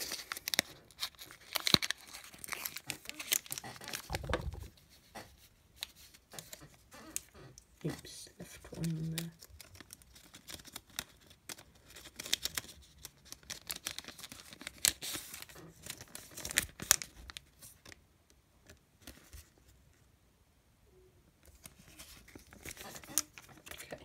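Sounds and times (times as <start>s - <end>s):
foil wrapper crinkling and tearing: 0.0s - 4.8s, 7.9s - 18.0s, 21.5s - 24.0s.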